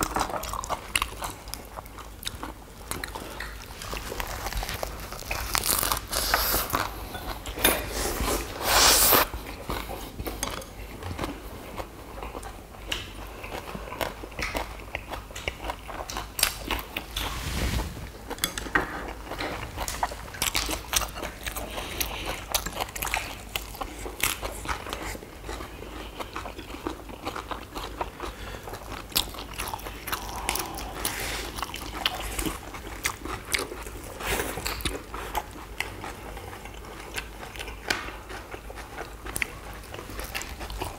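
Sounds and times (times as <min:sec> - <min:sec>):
wet chewing: 0:00.0 - 0:17.2, 0:19.2 - 0:40.9
crisp crunching of lettuce: 0:03.0 - 0:07.0.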